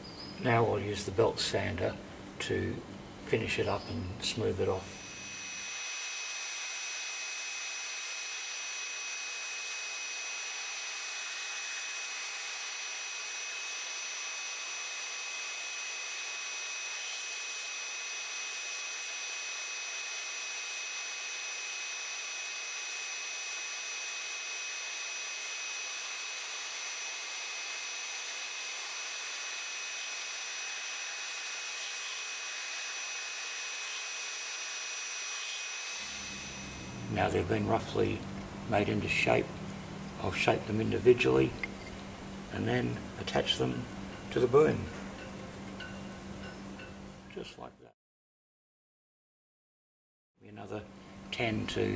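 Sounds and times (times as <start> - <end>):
belt sander sanding wood: 4.5 - 44.9.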